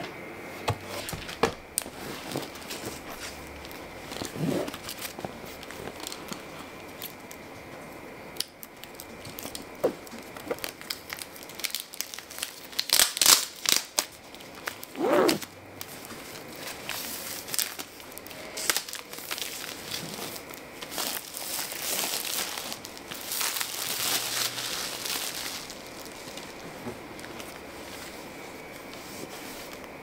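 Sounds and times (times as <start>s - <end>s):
plastic crinkling: 0.8s - 7.5s, 8.4s - 30.0s
plastic shrink-wrap tearing: 1.0s - 7.4s, 8.4s - 28.2s.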